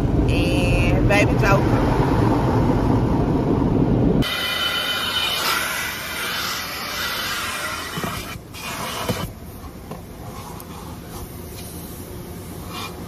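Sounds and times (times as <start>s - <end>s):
car wash spray hissing: 4.2s - 13.0s.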